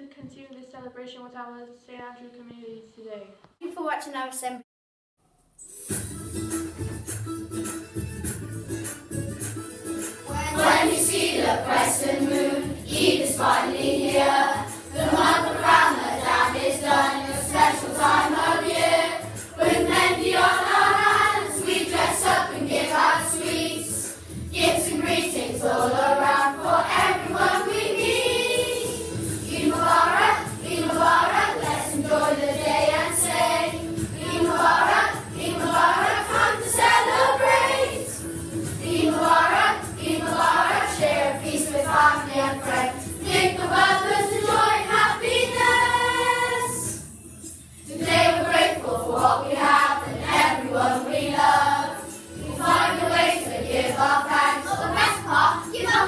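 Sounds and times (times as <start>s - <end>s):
children singing in unison: 10.6s - 38.2s, 38.8s - 46.9s, 47.9s - 56.0s.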